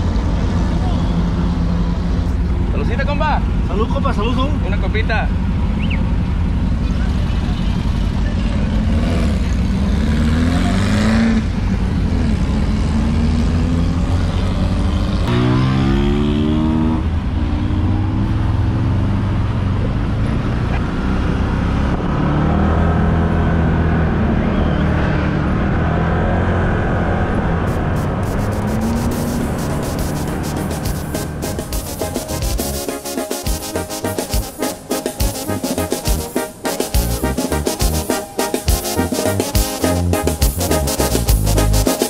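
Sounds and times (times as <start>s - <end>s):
utility vehicle engine revving: 5.5s - 32.7s.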